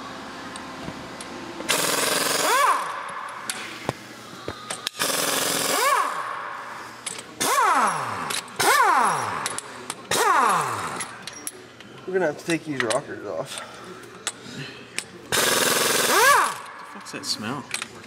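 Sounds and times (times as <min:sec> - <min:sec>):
impact wrench hammering: 0:01.7 - 0:03.6, 0:04.7 - 0:11.3, 0:15.3 - 0:16.8.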